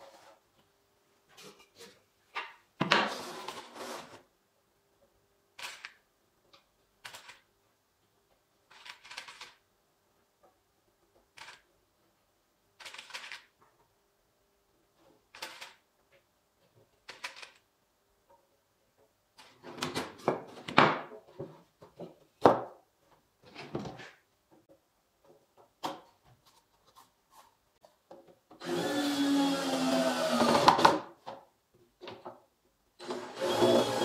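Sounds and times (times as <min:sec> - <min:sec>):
cordless drill driving a screw: 0:28.6 - 0:30.7, 0:33.0 - 0:34.0.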